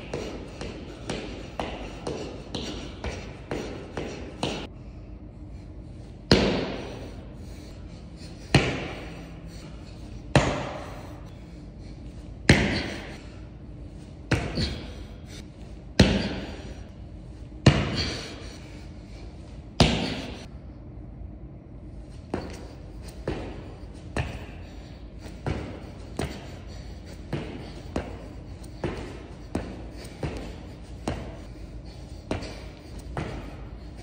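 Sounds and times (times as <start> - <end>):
pogo jumps on rubber floor: 0.1 - 4.7, 22.2 - 33.6.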